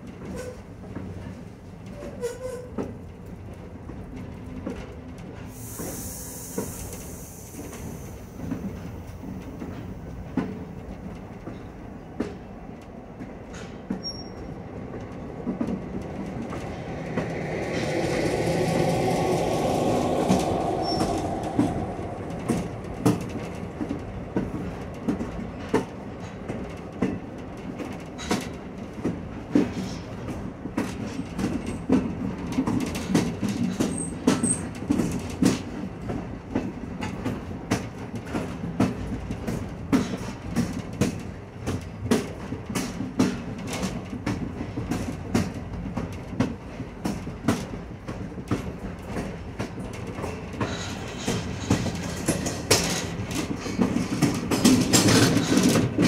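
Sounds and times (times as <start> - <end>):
train wheels clacking over rail joints: 0.0 - 56.0
rushing noise: 15.2 - 24.3.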